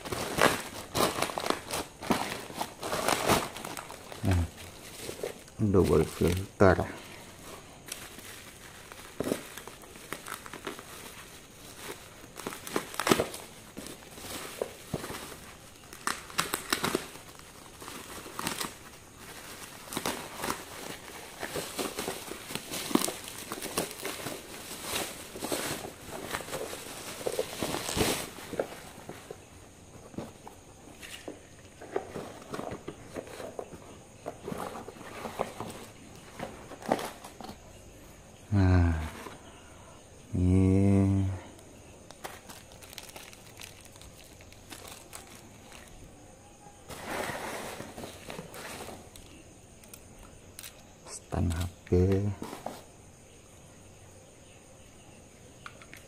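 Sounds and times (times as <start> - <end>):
bubble wrap crinkling and tearing: 0.0 - 29.4, 42.1 - 46.1.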